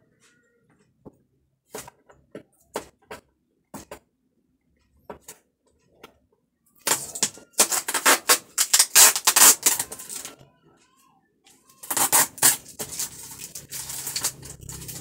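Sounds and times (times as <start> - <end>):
packaging crackling and tearing: 6.8 - 10.4, 11.8 - 15.0.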